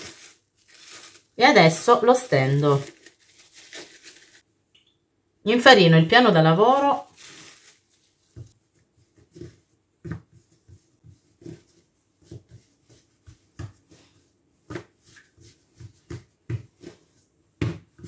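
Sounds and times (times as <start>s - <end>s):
hands patting dough: 8.3s - 18.0s.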